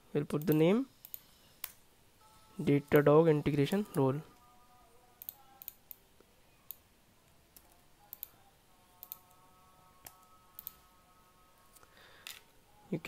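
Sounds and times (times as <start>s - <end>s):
computer mouse and keyboard clicks: 9.0s - 9.3s.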